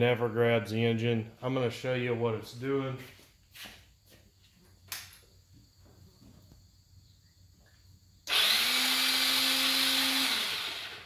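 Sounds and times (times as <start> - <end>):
electric starter motor whirring: 8.2 - 11.0.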